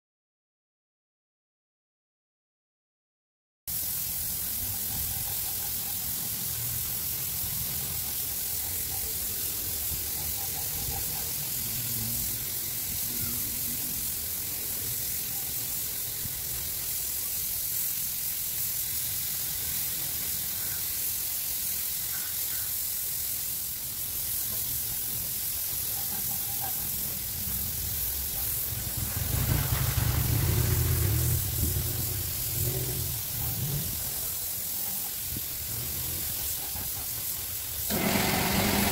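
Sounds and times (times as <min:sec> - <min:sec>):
spray gun hissing: 0:03.7 - 0:38.9
low rumble: 0:27.4 - 0:34.2.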